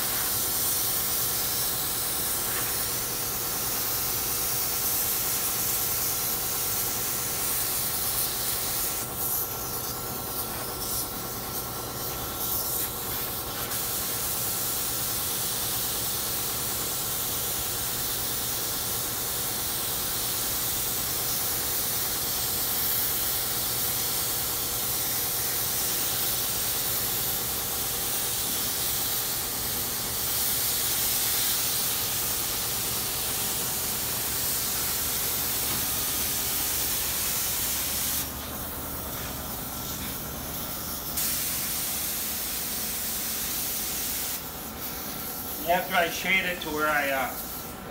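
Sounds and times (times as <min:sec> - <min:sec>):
spray gun hissing: 0:00.0 - 0:47.8
steady hum: 0:23.7 - 0:47.9.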